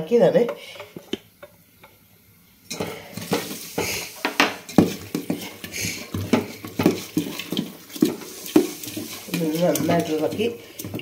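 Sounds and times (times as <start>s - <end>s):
utensil stirring batter in vessel: 2.7s - 11.0s.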